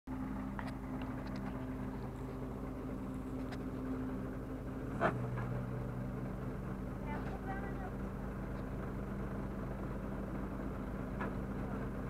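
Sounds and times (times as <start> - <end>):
truck engine idling: 0.1 - 12.0.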